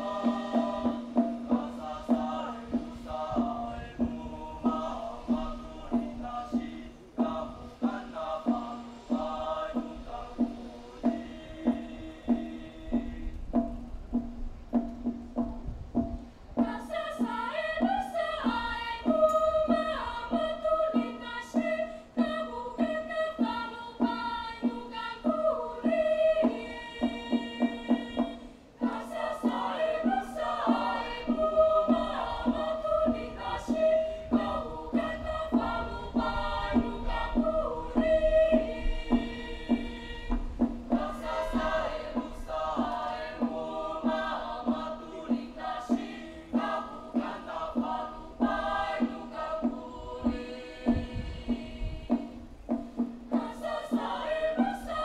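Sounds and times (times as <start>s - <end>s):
children's choir singing: 0.0s - 13.8s, 16.5s - 55.0s.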